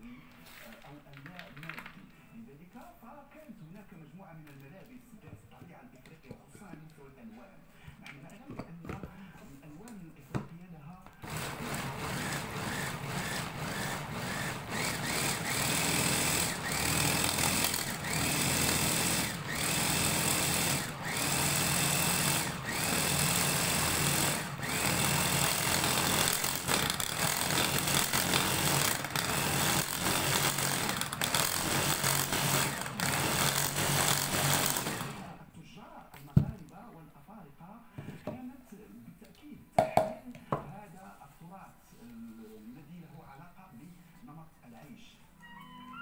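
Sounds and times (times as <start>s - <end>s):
electric chopper motor whining: 11.2s - 35.3s.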